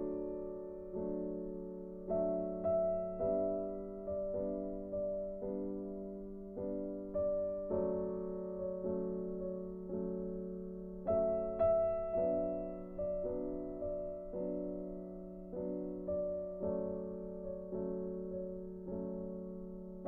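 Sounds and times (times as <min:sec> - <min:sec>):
slow gentle piano music: 0:00.0 - 0:20.0.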